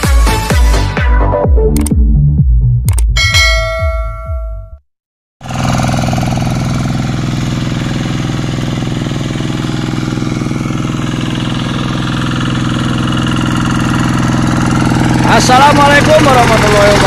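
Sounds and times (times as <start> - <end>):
hand tractor diesel engine running: 5.4 - 17.0.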